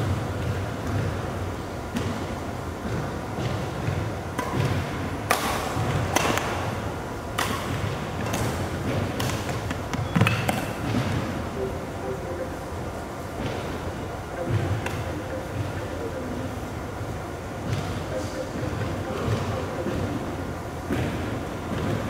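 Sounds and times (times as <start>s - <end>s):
rackets hitting shuttlecock: 2.8s - 11.3s.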